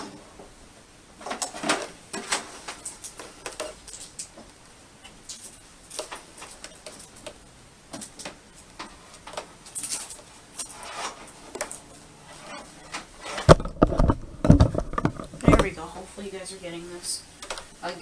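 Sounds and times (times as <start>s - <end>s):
small objects clicking and rustling: 5.0s - 11.9s.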